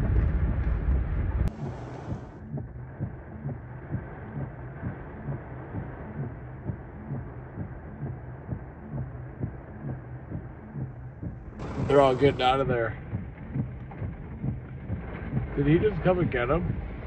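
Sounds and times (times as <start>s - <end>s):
wind buffeting vehicle: 0.0s - 3.0s, 11.4s - 17.0s
road rumble: 0.0s - 9.7s, 10.4s - 17.0s
low thumping: 0.0s - 17.0s
rain falling on vehicle: 11.6s - 13.0s.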